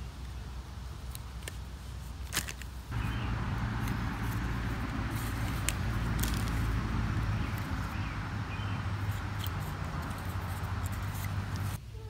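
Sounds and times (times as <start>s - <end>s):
wire strippers clicking: 2.3s - 11.8s
low outdoor rumble: 2.8s - 12.0s.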